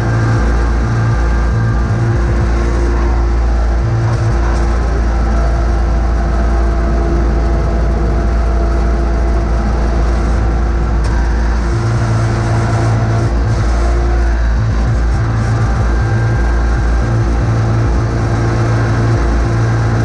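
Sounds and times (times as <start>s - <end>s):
garden tractor engine running: 0.0s - 20.0s.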